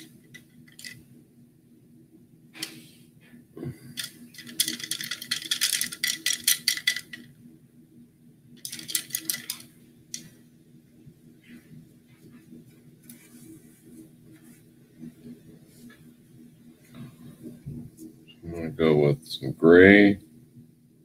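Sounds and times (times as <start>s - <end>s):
paintbrushes rattling and clicking: 0.0s - 1.0s, 3.9s - 7.3s, 8.6s - 10.3s
faint steady hum: 0.0s - 21.0s.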